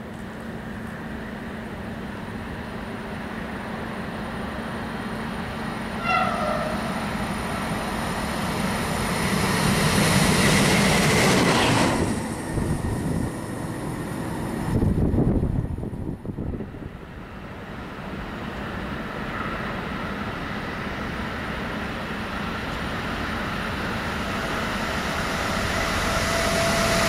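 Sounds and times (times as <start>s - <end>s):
locomotive engine and wheel noise: 0.0s - 27.0s
locomotive horn note: 6.0s - 7.0s.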